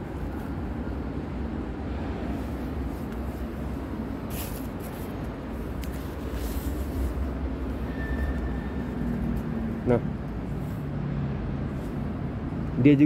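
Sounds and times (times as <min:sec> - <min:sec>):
low rumbling background noise: 0:00.0 - 0:13.0
short hissy scuffs: 0:04.2 - 0:05.2.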